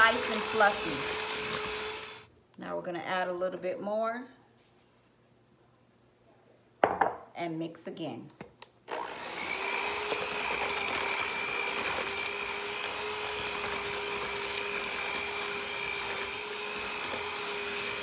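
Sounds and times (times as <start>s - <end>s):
electric hand mixer running: 0.0s - 2.3s, 8.9s - 18.0s.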